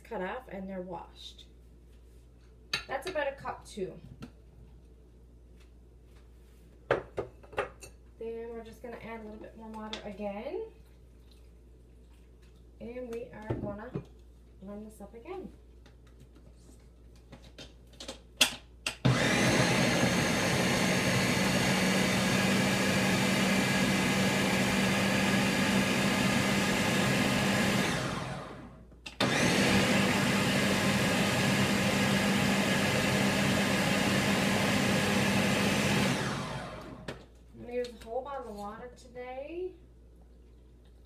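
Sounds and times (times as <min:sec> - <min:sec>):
blender running: 0:19.0 - 0:37.2.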